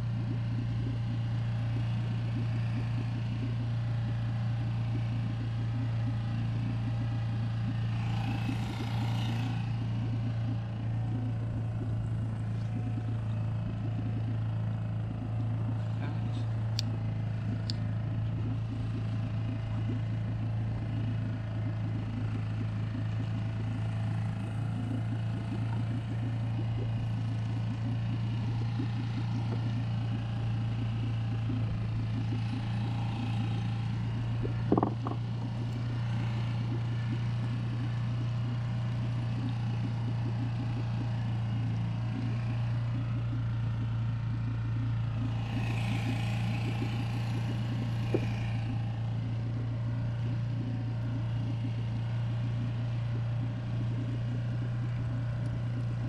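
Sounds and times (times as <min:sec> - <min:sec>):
outboard motor running: 0:00.0 - 0:56.0.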